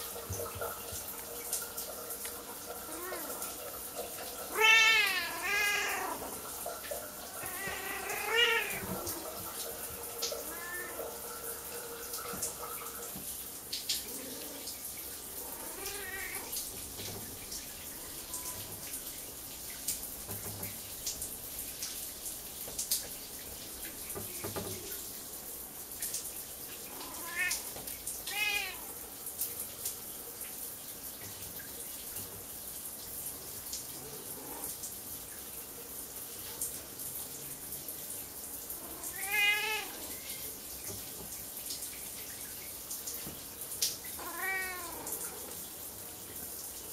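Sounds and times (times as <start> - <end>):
running water hiss: 0.0 - 46.9
cat meowing: 2.9 - 3.5, 4.4 - 6.5, 7.3 - 9.4, 10.3 - 11.2, 15.4 - 16.6, 17.9 - 18.8, 26.9 - 27.7, 28.3 - 28.9, 38.8 - 40.3, 44.2 - 45.4.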